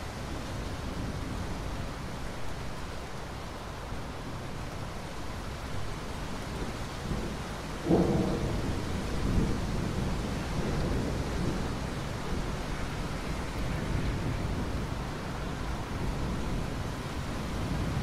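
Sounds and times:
steady rain falling: 0:00.0 - 0:18.0
low thunder rumble: 0:06.6 - 0:15.0.

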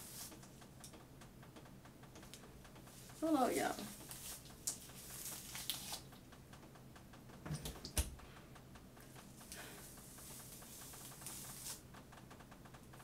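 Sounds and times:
brush crackling through wet hair: 0:00.0 - 0:00.5, 0:02.9 - 0:06.1, 0:09.5 - 0:11.8.

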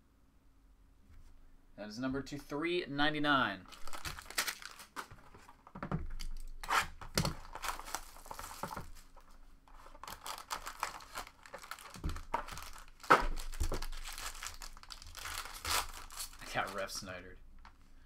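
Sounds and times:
foil wrapper crinkling and tearing: 0:03.7 - 0:05.3, 0:06.1 - 0:17.0.

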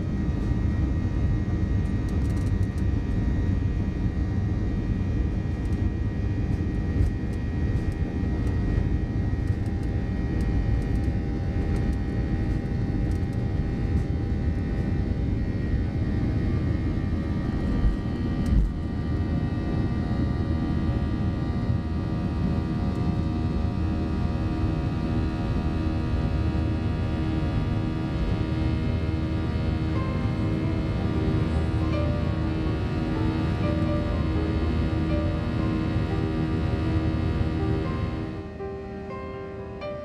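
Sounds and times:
jet engine roar with whining: 0:00.0 - 0:39.9.

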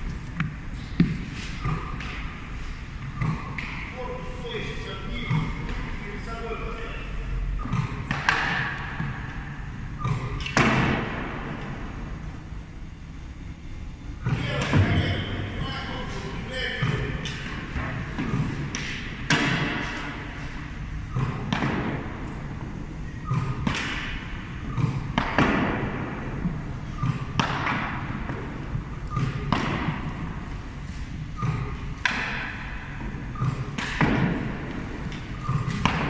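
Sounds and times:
tennis balls smacking goalie gear: 0:07.6 - 0:09.4, 0:16.7 - 0:22.6, 0:23.2 - 0:36.0.

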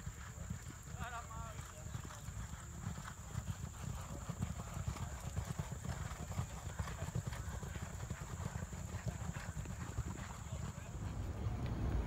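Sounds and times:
horses galloping on dirt: 0:00.0 - 0:12.0.

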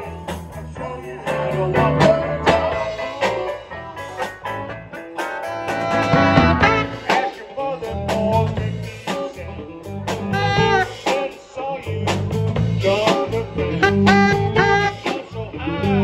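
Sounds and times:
live jazz band playing: 0:00.0 - 0:16.0
saxophone melody: 0:05.4 - 0:07.3, 0:10.2 - 0:11.2, 0:13.7 - 0:16.0.

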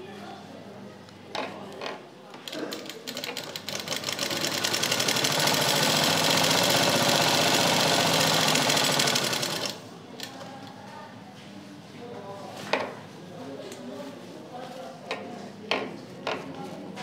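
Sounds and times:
sewing machine stitching: 0:02.5 - 0:09.8.

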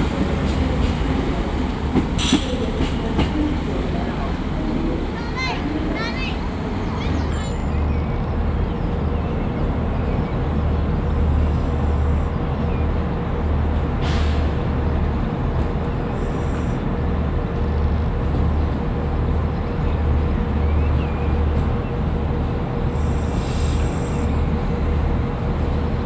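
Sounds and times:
train diesel engine throbbing: 0:00.0 - 0:26.0.

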